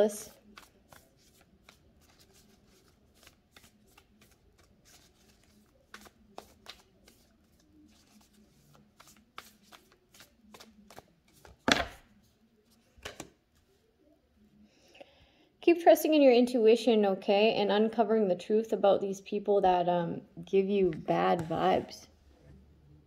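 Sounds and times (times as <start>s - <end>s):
cards being shuffled: 0.2s - 13.7s.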